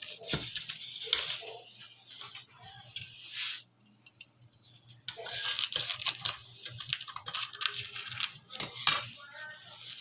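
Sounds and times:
cling film crinkling: 5.5 - 8.6.

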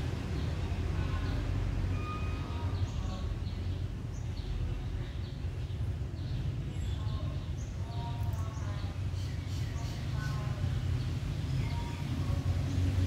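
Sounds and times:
small birds chirping: 2.6 - 13.0.

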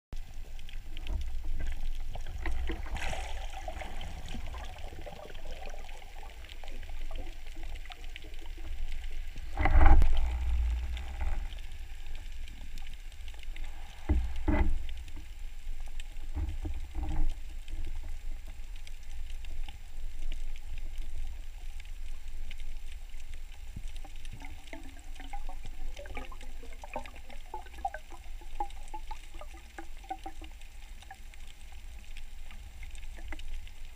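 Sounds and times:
underwater rumble of moving water: 0.2 - 33.9
dull knocks underwater: 9.4 - 11.5, 14.0 - 14.8.

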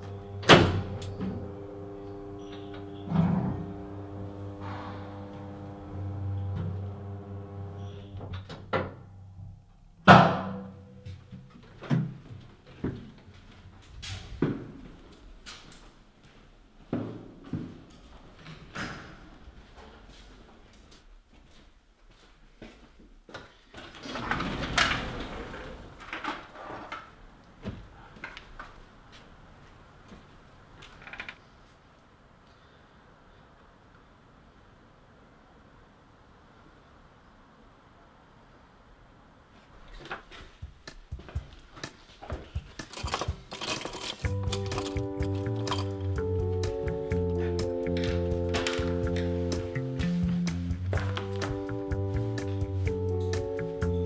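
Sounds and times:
noisy swell: 0.0 - 8.2
lift humming: 0.0 - 9.8, 40.7 - 54.0
footsteps: 11.0 - 18.7, 19.3 - 24.0, 39.6 - 53.4.

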